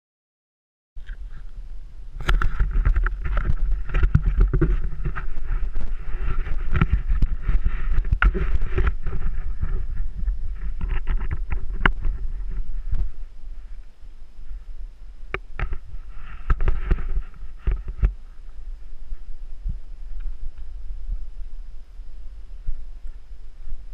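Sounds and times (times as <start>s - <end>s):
wind rumble on microphone: 1.0s - 23.9s
bike rattles and knocks: 2.2s - 13.2s.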